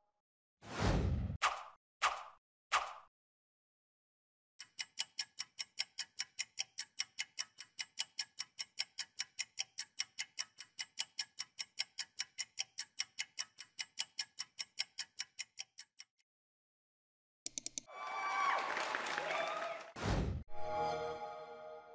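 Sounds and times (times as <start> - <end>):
fast clock ticking: 4.6 - 16.2, 17.5 - 17.9.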